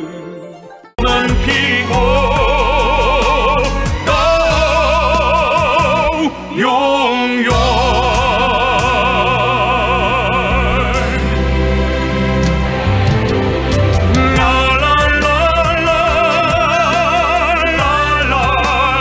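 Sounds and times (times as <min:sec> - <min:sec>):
orchestra playing: 0:00.0 - 0:19.0
operatic singing voices: 0:01.0 - 0:12.4, 0:14.1 - 0:19.0.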